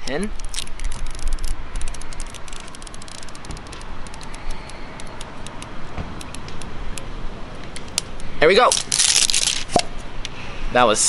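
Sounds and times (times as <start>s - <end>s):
plastic wrapping crackling: 8.6s - 9.8s.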